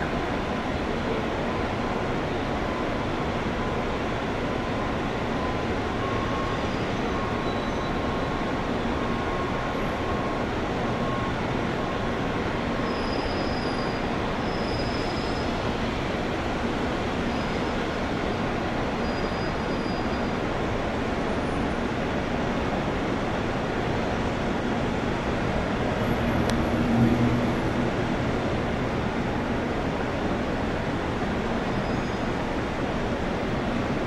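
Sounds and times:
faint high whine: 0:00.0 - 0:15.8.

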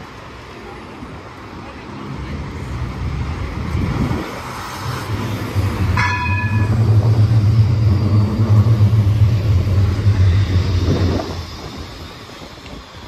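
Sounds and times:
tram passing hum: 0:00.0 - 0:13.0
high ringing tone: 0:05.8 - 0:12.2.

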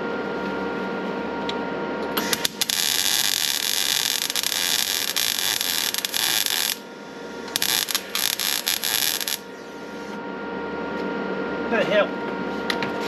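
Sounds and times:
welding arc crackling: 0:02.2 - 0:06.9, 0:07.5 - 0:09.6.

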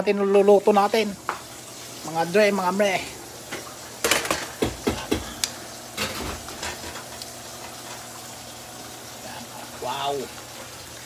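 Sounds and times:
frying pan sizzling: 0:00.0 - 0:11.0
utensils knocking and clattering: 0:03.5 - 0:05.4, 0:06.0 - 0:07.8.

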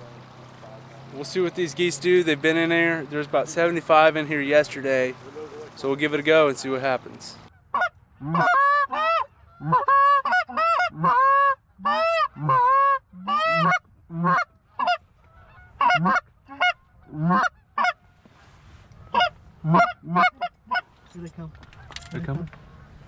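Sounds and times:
goose honking and clucking: 0:07.0 - 0:23.0.

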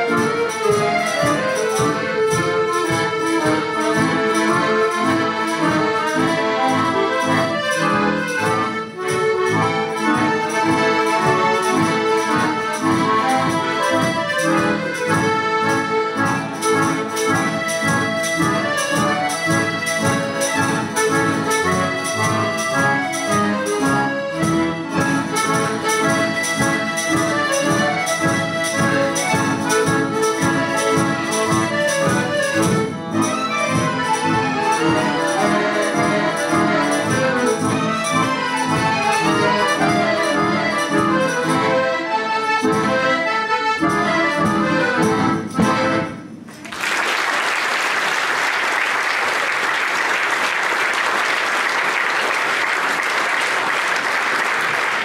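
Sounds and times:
accordion orchestra playing: 0:00.0 - 0:55.0
audience applause: 0:46.5 - 0:55.0.

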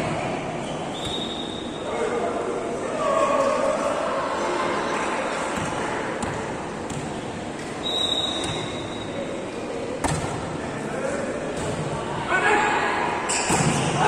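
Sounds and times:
reverberant sports hall hubbub: 0:00.0 - 0:14.0
high whistle-like tone: 0:07.8 - 0:09.1.

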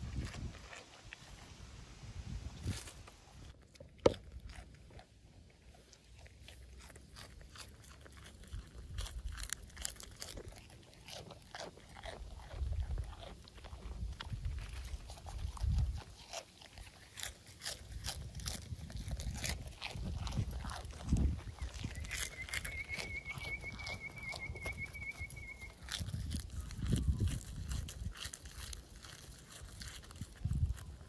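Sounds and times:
goat crunching leafy greens: 0:00.0 - 0:31.0.

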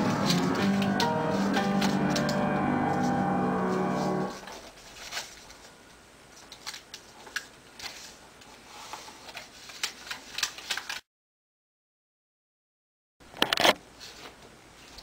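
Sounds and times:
paper being folded and creased: 0:03.9 - 0:05.8, 0:06.4 - 0:11.1.

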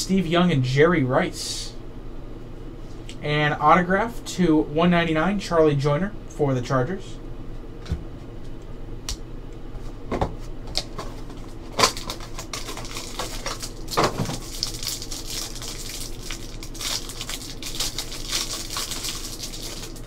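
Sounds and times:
cellophane wrapper crinkling: 0:10.8 - 0:20.0.

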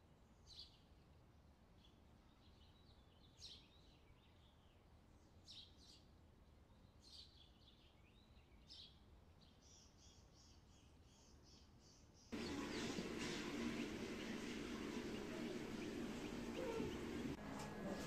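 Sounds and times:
bird chirps: 0:06.8 - 0:18.0.

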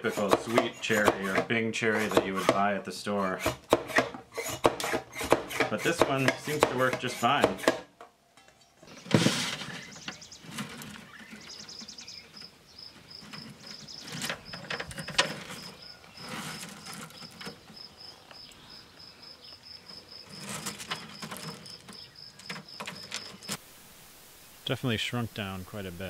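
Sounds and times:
plastic trays sliding: 0:08.9 - 0:12.2, 0:13.2 - 0:17.8, 0:20.2 - 0:23.6
insect chirping: 0:11.1 - 0:26.0.

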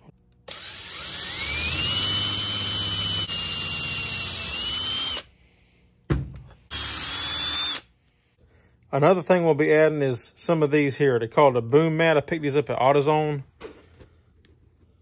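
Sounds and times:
electric drill whining: 0:00.5 - 0:05.3, 0:06.7 - 0:07.9.

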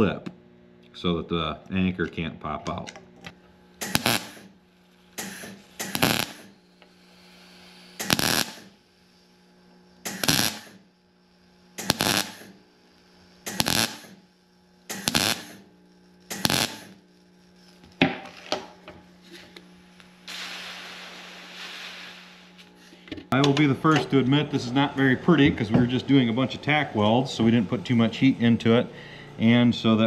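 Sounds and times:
welder tack welding bursts: 0:03.3 - 0:22.7.

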